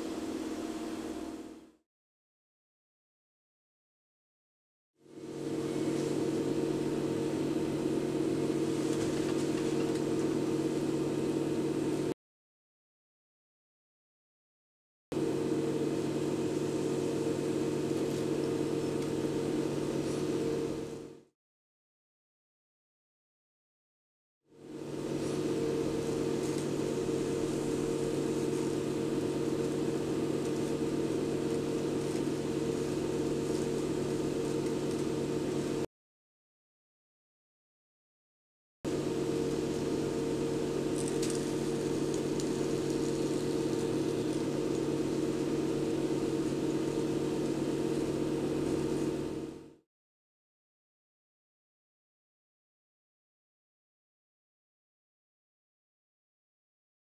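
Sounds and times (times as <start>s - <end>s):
small electric motor humming: 5.1s - 12.1s, 15.2s - 21.2s, 24.6s - 35.8s, 38.9s - 49.8s.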